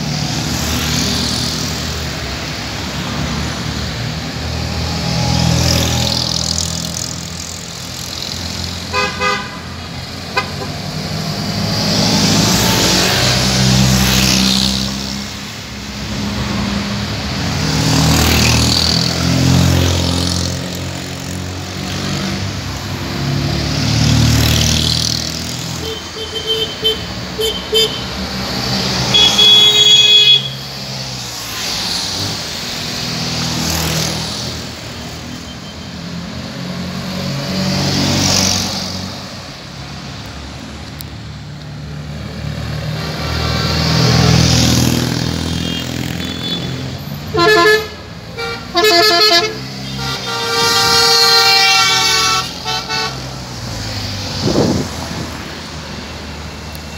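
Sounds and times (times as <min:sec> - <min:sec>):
car horn honks: 0:08.9 - 0:09.7, 0:10.3 - 0:10.8, 0:29.1 - 0:30.6, 0:45.5 - 0:46.7, 0:47.3 - 0:53.2
small car engines passing: 0:11.0 - 0:15.3, 0:53.2 - 0:56.7.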